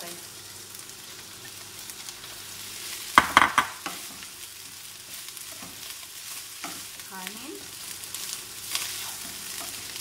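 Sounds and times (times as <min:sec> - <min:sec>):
rice sizzling in a frying pan: 0:00.0 - 0:10.0
spatula knocking and scraping pan: 0:03.2 - 0:04.2.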